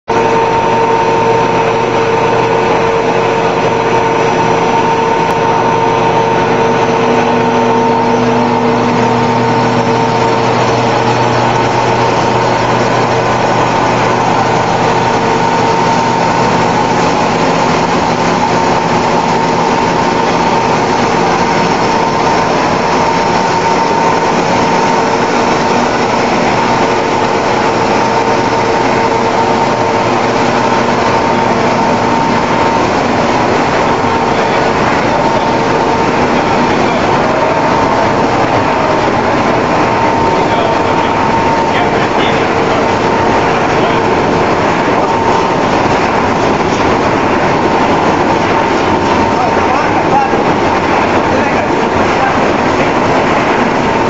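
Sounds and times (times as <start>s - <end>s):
extruder machinery droning: 0.0s - 54.0s.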